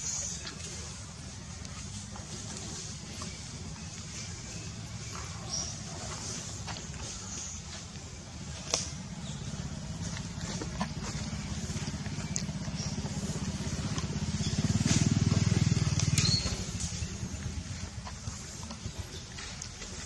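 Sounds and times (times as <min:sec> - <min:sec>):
engine running: 0:00.0 - 0:20.0.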